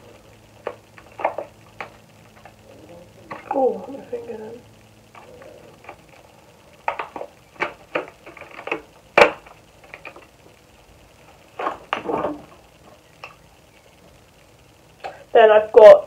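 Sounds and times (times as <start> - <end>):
packaging rustling and tapping: 6.8 - 10.3.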